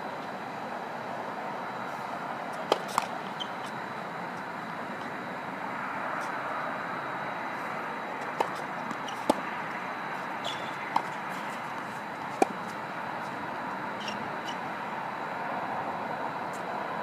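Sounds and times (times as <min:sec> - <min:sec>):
steady background hiss: 0:00.0 - 0:17.0
tennis ball hitting racket: 0:02.5 - 0:03.8, 0:08.2 - 0:14.6.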